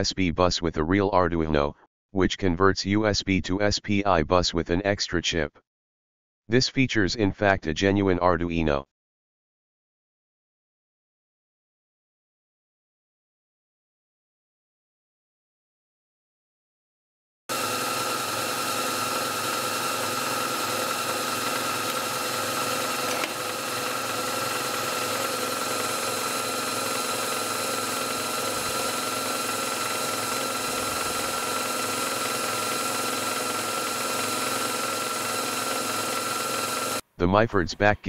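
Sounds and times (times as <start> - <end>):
lathe running: 17.5 - 37.0.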